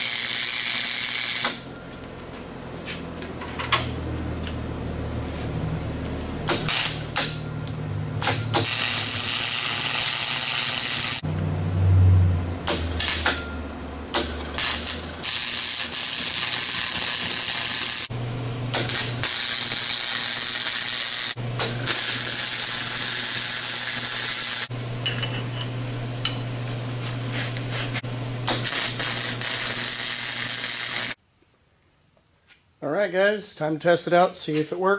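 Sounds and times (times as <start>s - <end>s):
arc welder crackling and sizzling: 0.0s - 1.7s, 6.5s - 11.2s, 12.7s - 13.4s, 14.1s - 31.2s
welder low hum: 0.0s - 31.2s.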